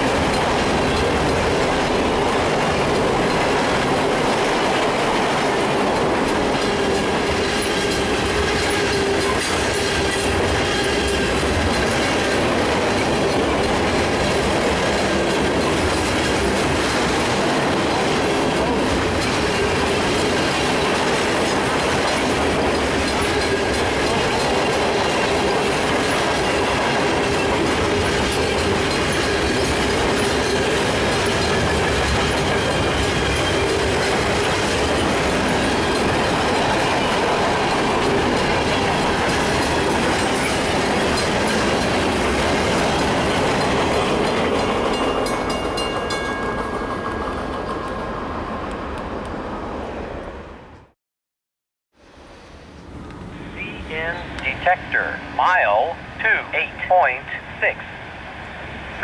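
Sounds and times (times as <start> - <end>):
freight train wheels rumbling: 0.0 - 50.8.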